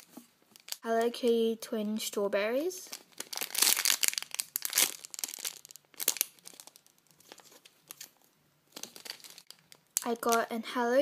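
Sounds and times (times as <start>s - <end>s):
plastic bags crinkling: 0.5s - 0.9s, 2.9s - 10.5s.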